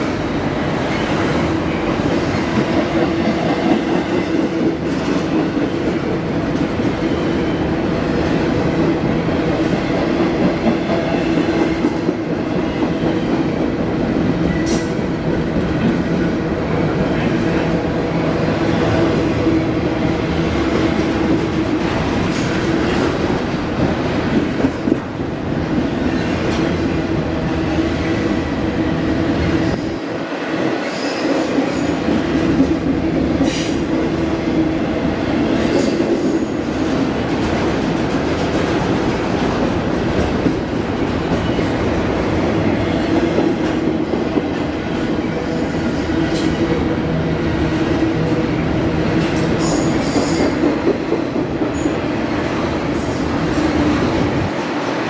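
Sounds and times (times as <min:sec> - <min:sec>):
train wheels rolling over rails: 0:00.0 - 0:55.0.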